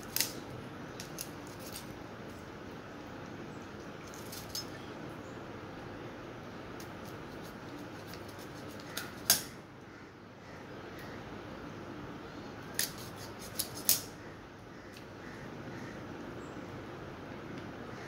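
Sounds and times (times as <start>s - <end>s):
low room hiss: 0.0s - 18.0s
blade snipping raw chicken: 6.8s - 9.5s, 12.8s - 14.1s.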